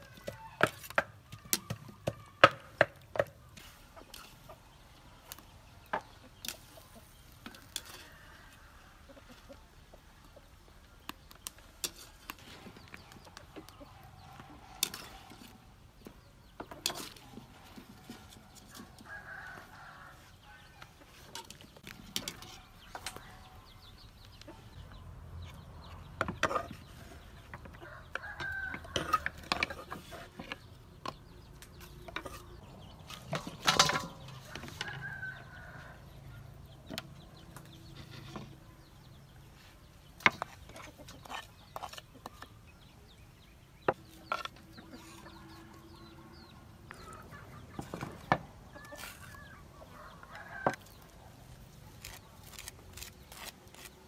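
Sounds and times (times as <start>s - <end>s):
chickens clucking: 0.0s - 53.1s
chicken feet clattering into steel bowl: 33.2s - 35.0s.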